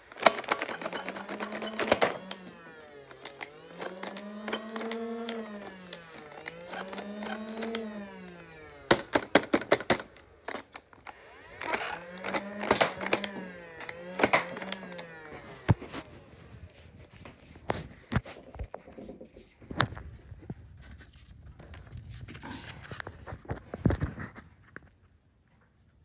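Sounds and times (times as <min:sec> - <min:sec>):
small electric motor whirring: 0:00.0 - 0:18.0
plastic clicks and clatter: 0:00.0 - 0:20.6.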